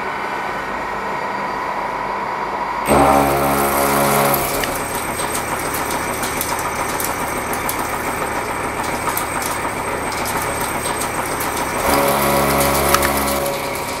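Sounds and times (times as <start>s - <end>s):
milling cutter cutting steel: 2.9s - 14.0s.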